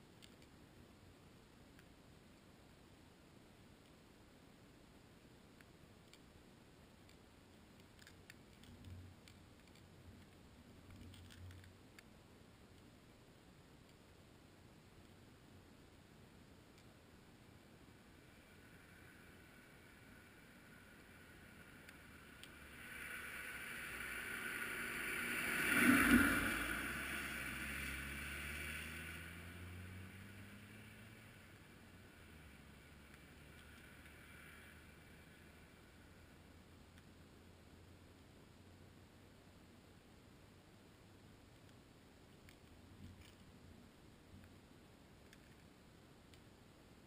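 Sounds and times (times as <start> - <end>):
faint clicks: 0.0 - 0.6, 5.5 - 14.2, 18.1 - 29.2, 30.2 - 35.8, 36.9 - 37.2, 41.4 - 43.6, 44.2 - 46.6
faint low hum: 0.0 - 47.0
vehicle passing by: 18.3 - 35.8.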